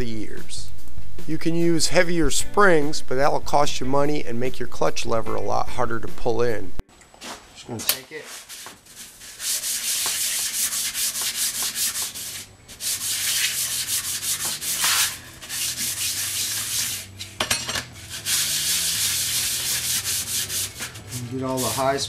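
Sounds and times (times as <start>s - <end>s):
sanding on emery paper: 8.2s - 17.1s, 18.0s - 22.0s.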